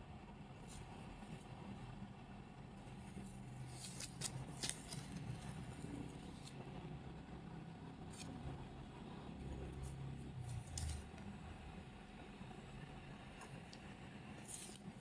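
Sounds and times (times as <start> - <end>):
low room hum: 0.0 - 15.0
kitten rustling and scratching: 2.9 - 6.6, 9.6 - 11.3, 14.3 - 15.0.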